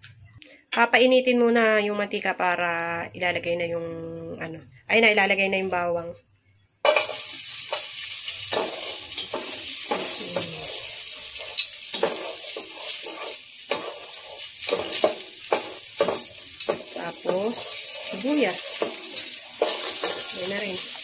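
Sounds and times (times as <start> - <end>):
garlic sizzling in hot oil: 6.8 - 21.0
turner scraping pot bottom: 6.9 - 21.0.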